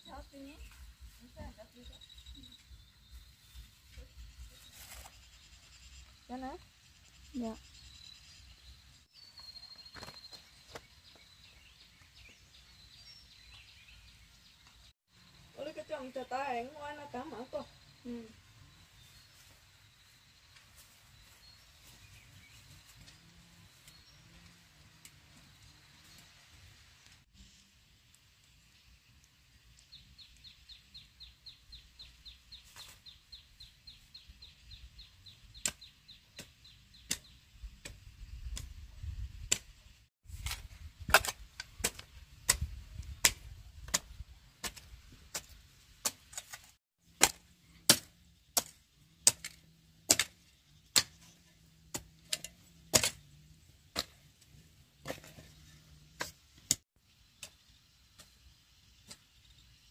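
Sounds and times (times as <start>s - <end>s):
hoe chopping stony soil: 9.8s - 11.3s, 35.5s - 38.7s, 40.3s - 59.3s.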